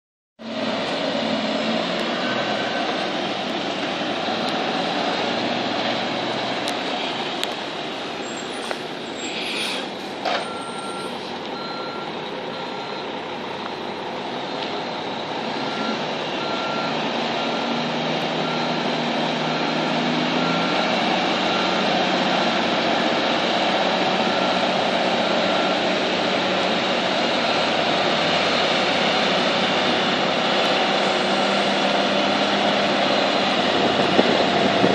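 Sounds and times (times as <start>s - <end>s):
truck diesel engine running: 0.4s - 34.9s
short air hiss: 8.7s - 10.0s
backup alarm beeping: 10.4s - 13.1s.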